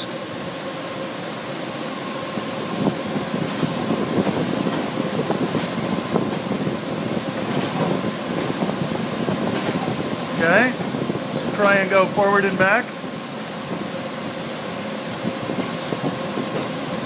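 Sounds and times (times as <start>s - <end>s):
cooling fans whirring: 0.0s - 17.0s
rack rumbling rattle with clicks: 2.8s - 12.1s, 15.2s - 17.0s.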